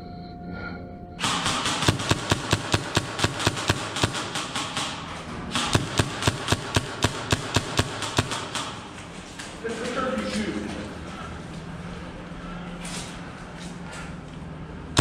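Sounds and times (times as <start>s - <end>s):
airsoft gun shots: 1.2s - 8.9s.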